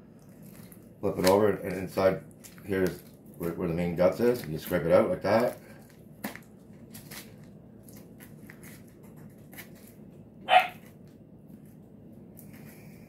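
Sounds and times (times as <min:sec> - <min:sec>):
dog barking: 0:10.4 - 0:10.8.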